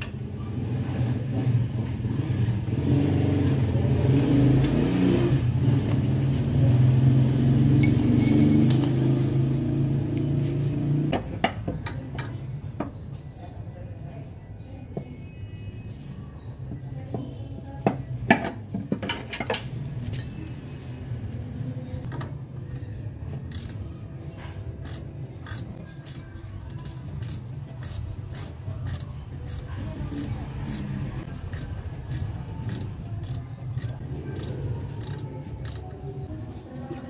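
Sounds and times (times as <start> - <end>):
wrench metal clicks and clinks: 23.5 - 23.8, 24.8 - 30.9, 31.5 - 35.9.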